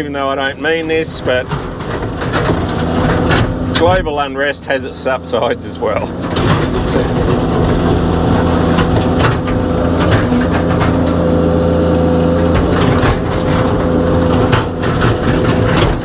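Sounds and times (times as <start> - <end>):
excavator diesel engine: 0.0 - 16.0
excavator digging knocks: 0.7 - 4.5, 6.1 - 16.0
high whine: 5.3 - 16.0.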